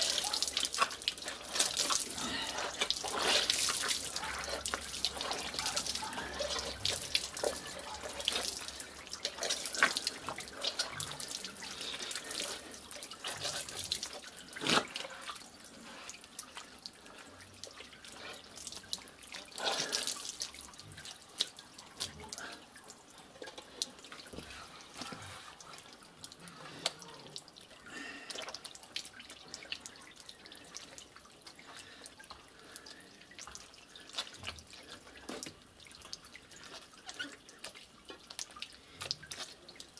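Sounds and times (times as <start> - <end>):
water dripping: 0.0 - 39.9
wet pulp squishing: 0.0 - 39.9.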